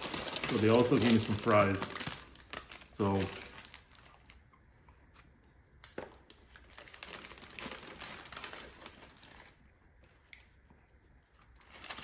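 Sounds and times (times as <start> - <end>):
paper wrapper crinkling: 0.0 - 4.4, 6.3 - 9.6, 11.5 - 12.0.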